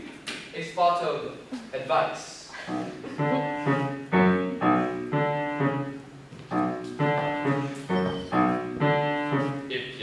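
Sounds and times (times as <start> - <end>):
piano chords: 2.7 - 10.0.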